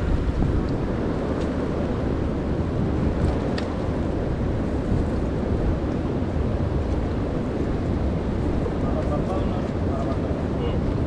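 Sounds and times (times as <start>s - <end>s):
wind buffeting microphone: 0.0s - 11.0s.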